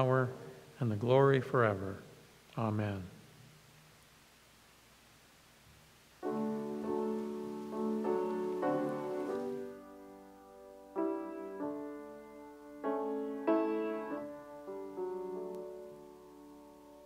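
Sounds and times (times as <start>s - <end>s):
piano playing slow chords: 6.2s - 17.0s.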